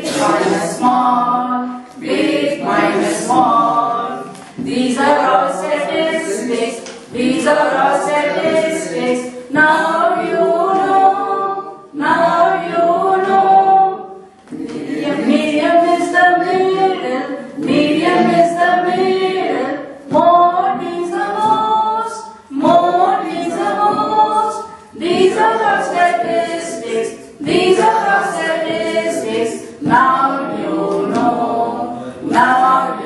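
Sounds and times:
woman singing into microphone: 0:00.0 - 0:14.2, 0:15.2 - 0:33.0
group singing unaccompanied: 0:00.0 - 0:33.0.

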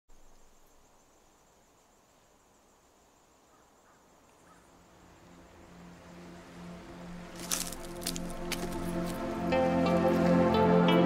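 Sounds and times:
quiet background music: 0:04.6 - 0:11.0.

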